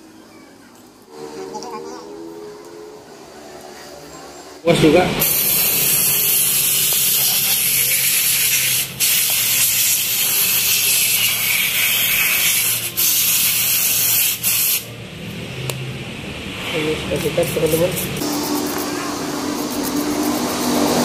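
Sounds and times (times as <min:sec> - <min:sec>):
aerosol spray hissing: 0:05.2 - 0:14.9.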